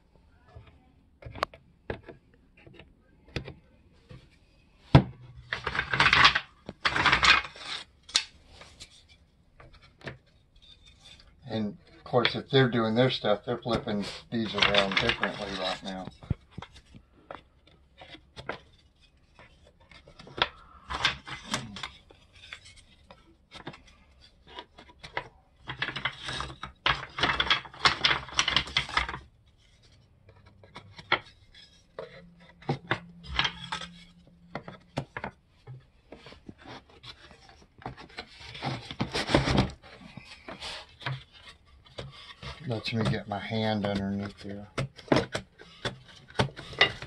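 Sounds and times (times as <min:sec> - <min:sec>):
wood rubbing and sliding: 0:00.6 - 0:47.0
wooden clicks and knocks: 0:04.9 - 0:08.3, 0:13.6 - 0:18.8, 0:19.4 - 0:23.9, 0:24.5 - 0:47.0.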